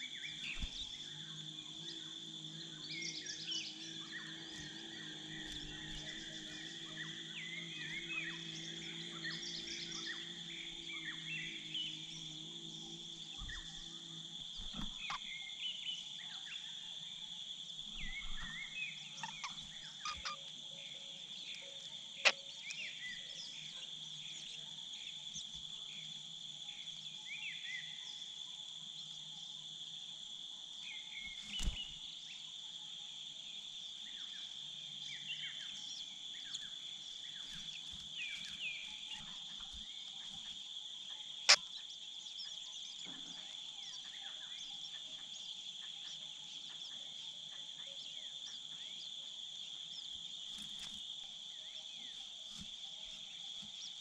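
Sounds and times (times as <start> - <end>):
high-pitched insect chorus: 0.0 - 54.0.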